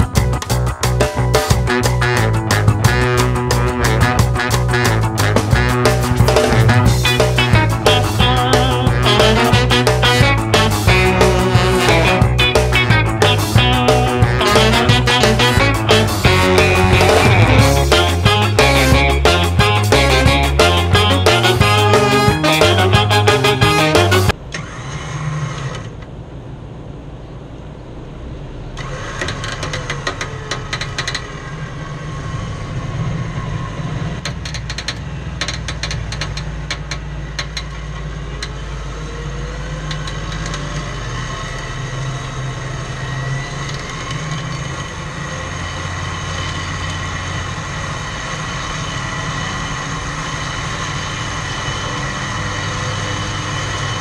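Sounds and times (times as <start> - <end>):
off-road vehicle engines running: 0.0 - 54.0
clicking and clatter: 29.1 - 31.3, 34.2 - 38.6, 39.8 - 40.9.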